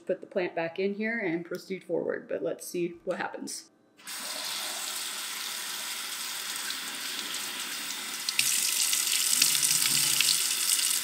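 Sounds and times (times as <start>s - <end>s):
tap water running into pot: 4.1s - 11.0s.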